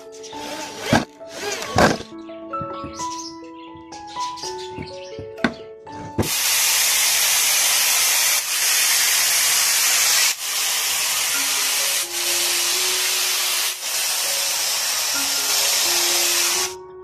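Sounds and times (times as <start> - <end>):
angle grinder cutting mesh: 0.2 - 2.1, 6.2 - 16.8.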